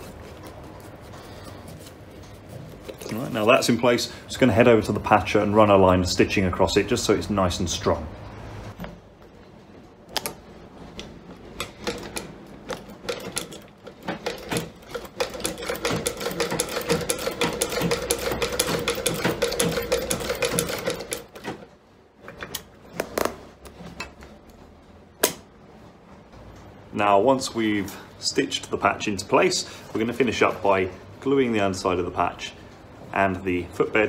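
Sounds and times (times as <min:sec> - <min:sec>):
sewing machine hum: 0:10.6 - 0:21.5
sewing machine needle clatter: 0:11.6 - 0:21.5.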